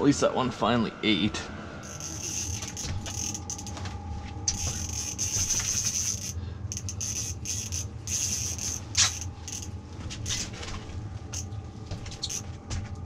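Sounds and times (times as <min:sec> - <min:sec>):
fishing reel cranking: 0:01.8 - 0:03.8, 0:04.5 - 0:10.4, 0:12.2 - 0:12.5.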